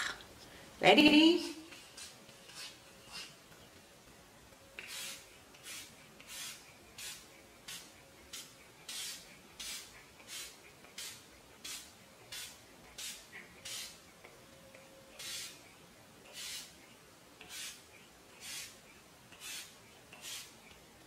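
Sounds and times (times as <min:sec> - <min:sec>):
spray bottle hissing: 0:04.8 - 0:14.0, 0:15.2 - 0:15.6, 0:16.3 - 0:16.7, 0:17.4 - 0:17.8, 0:18.4 - 0:18.8, 0:19.4 - 0:20.6.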